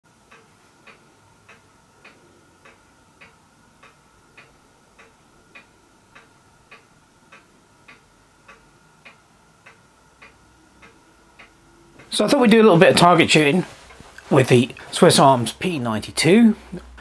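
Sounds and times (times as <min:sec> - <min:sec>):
faint steady tone: 0:00.1 - 0:14.9
clock ticking: 0:00.1 - 0:17.0.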